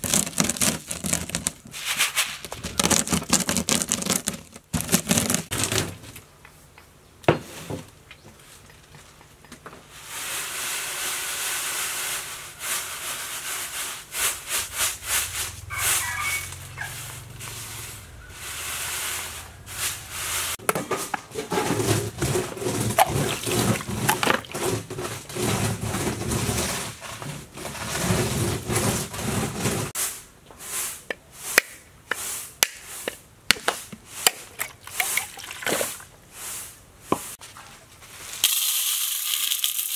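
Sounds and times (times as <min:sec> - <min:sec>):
rolling pin crushing beans: 0:00.0 - 0:06.2, 0:20.6 - 0:30.0
beans swishing on bamboo tray: 0:00.2 - 0:05.5, 0:09.9 - 0:15.6, 0:17.0 - 0:20.6, 0:21.8 - 0:33.2, 0:35.8 - 0:38.6.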